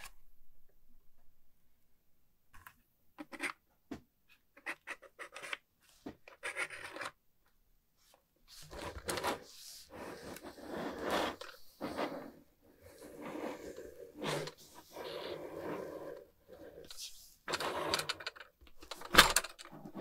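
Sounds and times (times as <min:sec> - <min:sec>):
plastic board scraping on table: 0:08.6 - 0:16.8.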